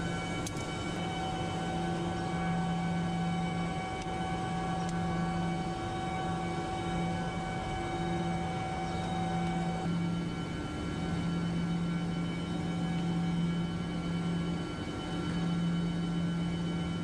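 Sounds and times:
chiller machinery humming: 0.0 - 17.0.

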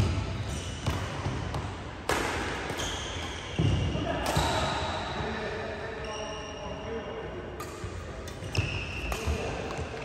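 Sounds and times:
racket hitting shuttlecock: 0.0 - 4.7.

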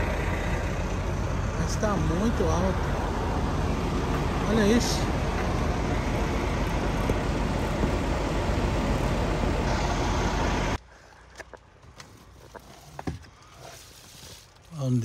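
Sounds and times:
vehicle road and wind noise: 0.0 - 14.7.

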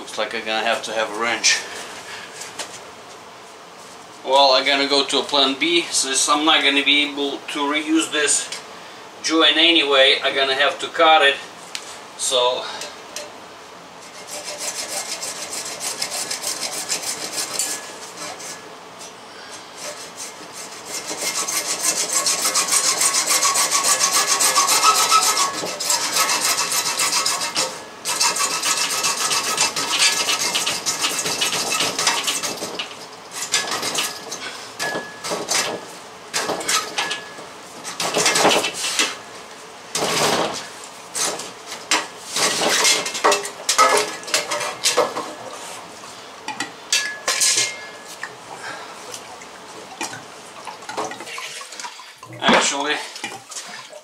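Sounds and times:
hacksaw cutting plastic pipe: 14.1 - 18.6, 19.8 - 34.2.

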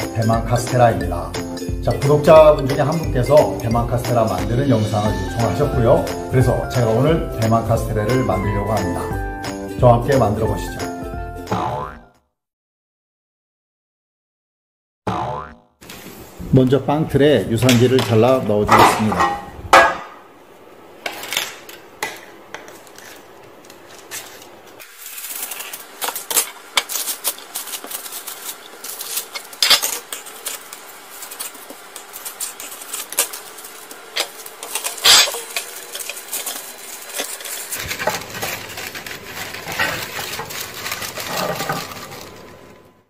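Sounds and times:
paper crinkling: 22.6 - 43.0.

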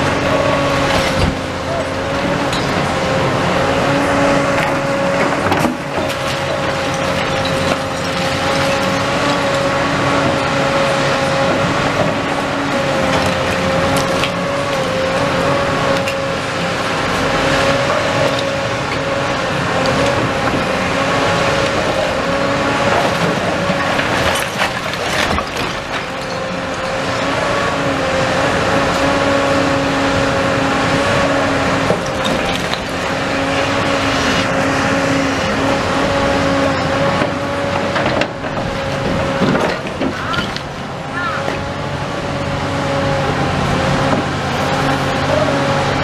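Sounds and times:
excavator hydraulic whine: 0.0 - 46.0
falling brick and rubble: 5.3 - 10.4, 22.8 - 27.1, 31.9 - 33.2, 37.2 - 41.6.

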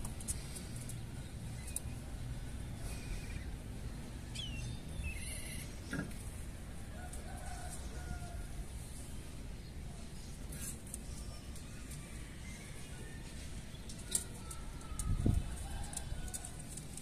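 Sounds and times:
faint bird calls: 2.7 - 6.2.

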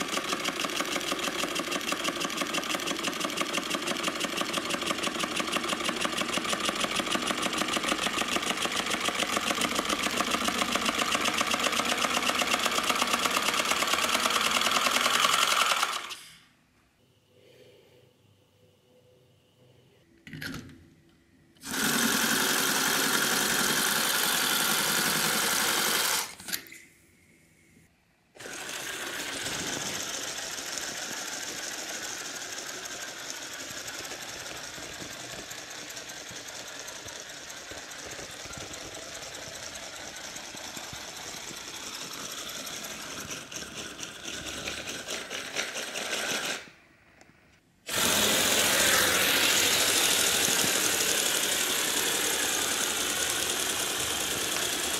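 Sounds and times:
small motor mechanical chatter: 0.0 - 16.4, 21.6 - 26.6, 28.4 - 46.7, 47.9 - 54.9
air hissing: 47.9 - 53.1.

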